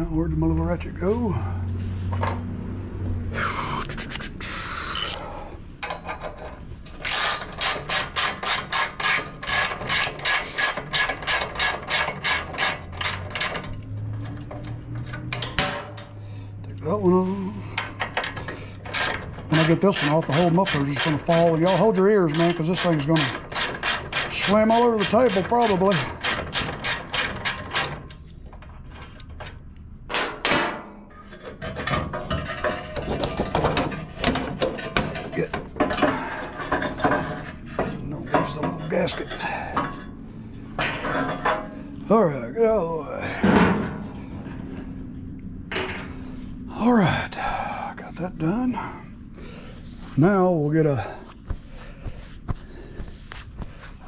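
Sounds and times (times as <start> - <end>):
hand ratchet clicking: 7.0 - 15.6, 17.8 - 28.0
loud metal clank: 15.3 - 16.2, 30.1 - 31.1, 43.4 - 44.2.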